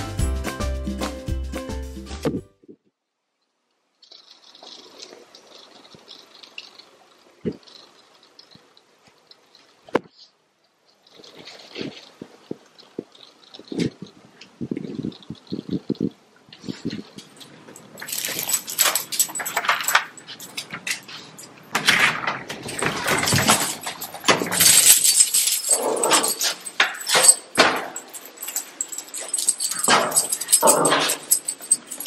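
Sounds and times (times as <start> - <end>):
collar tags jingling: 16.8 - 32.0.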